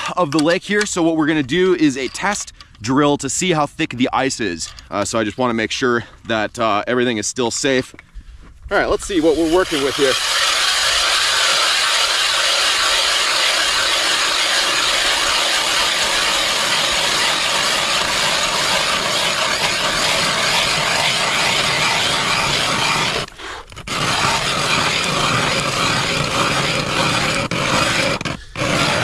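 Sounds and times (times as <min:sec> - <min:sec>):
ice auger grinding through ice: 0:08.7 - 0:29.0.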